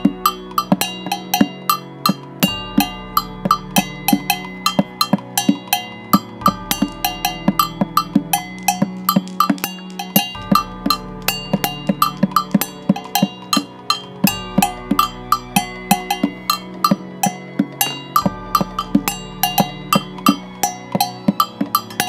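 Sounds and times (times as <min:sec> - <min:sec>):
sharp clicking percussion: 0:00.0 - 0:22.0
sustained low notes: 0:00.0 - 0:22.0.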